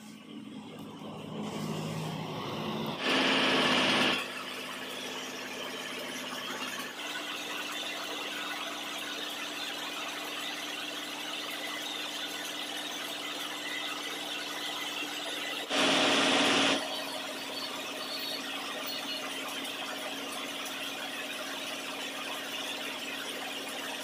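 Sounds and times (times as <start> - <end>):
lathe running: 1.0 - 7.4
cutter scraping metal: 1.4 - 4.5
loud harsh burst: 3.0 - 4.3, 15.7 - 16.9.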